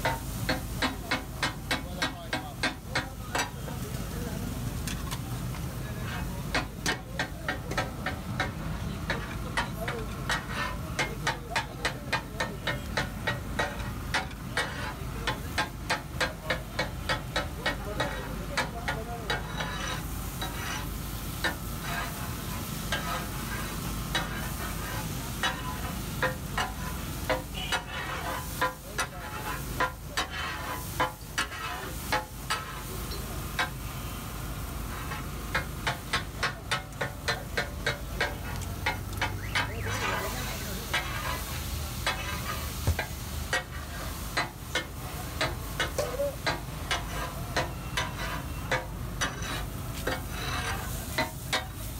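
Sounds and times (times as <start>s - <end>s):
frying sizzle: 0.0s - 51.9s
metal spatulas chopping and scraping: 6.0s - 22.2s, 24.1s - 32.8s.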